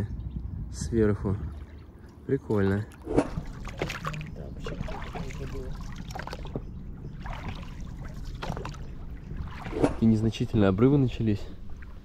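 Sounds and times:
paddle splashing water: 1.4s - 10.7s.

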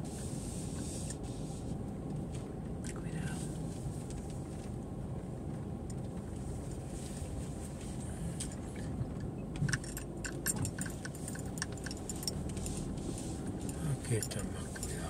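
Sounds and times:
car cabin rumble: 0.0s - 15.0s
light irregular clicks: 8.4s - 12.7s.

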